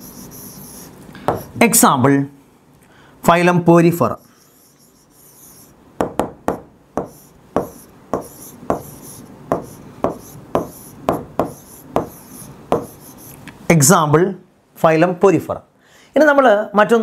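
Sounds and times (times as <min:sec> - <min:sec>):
faint high scratching: 0:00.0 - 0:01.5, 0:04.1 - 0:05.8, 0:07.0 - 0:13.4
marker pen writing on board: 0:00.0 - 0:01.5, 0:04.6 - 0:13.4.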